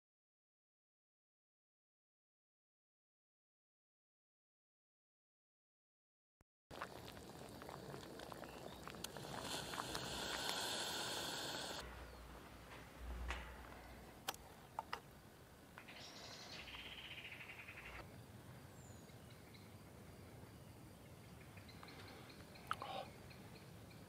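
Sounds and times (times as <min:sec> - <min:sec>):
camping stove hissing: 0:06.7 - 0:11.8.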